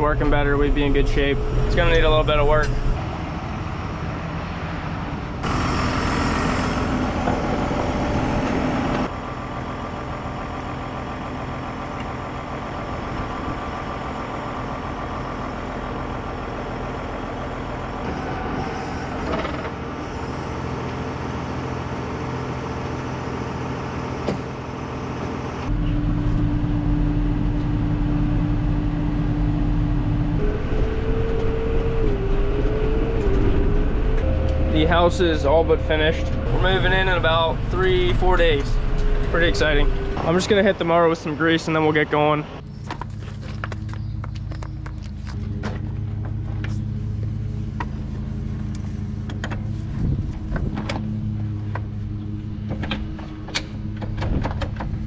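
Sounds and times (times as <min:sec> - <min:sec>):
steady whine: 0:00.0 - 0:55.0
tractor engine running: 0:00.0 - 0:55.0.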